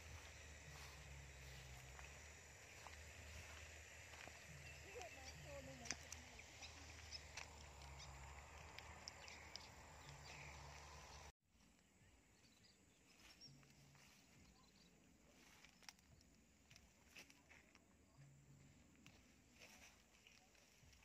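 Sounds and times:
low steady hum: 0.0 - 15.3.

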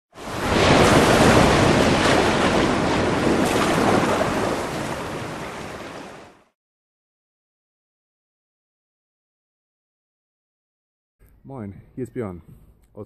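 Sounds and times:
sea surf rushing: 0.1 - 6.6.

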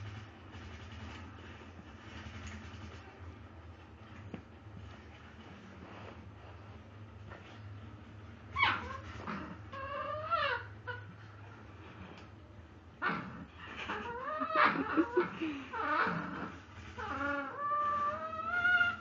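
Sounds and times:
puppy whining and yipping: 8.5 - 11.1, 16.9 - 19.0.

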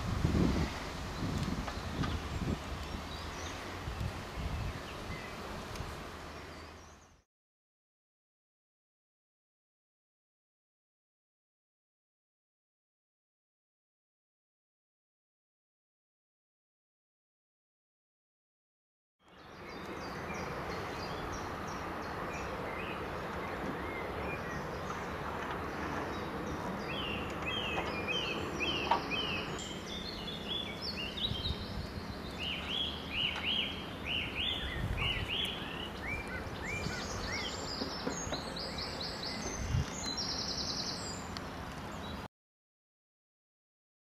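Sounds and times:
songbirds chirping: 0.0 - 7.3, 19.2 - 42.3
steady background hiss: 19.3 - 42.2.

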